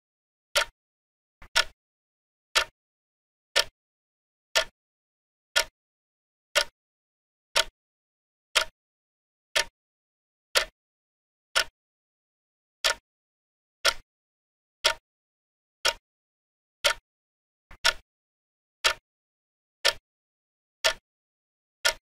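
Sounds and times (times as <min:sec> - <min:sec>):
clock ticking: 0:00.6 - 0:00.8, 0:01.4 - 0:01.8, 0:06.6 - 0:06.8, 0:12.8 - 0:13.0, 0:13.8 - 0:14.0, 0:14.8 - 0:15.0, 0:15.8 - 0:16.0, 0:16.8 - 0:17.0, 0:17.7 - 0:18.0, 0:18.8 - 0:19.0, 0:19.8 - 0:20.0, 0:20.8 - 0:21.0.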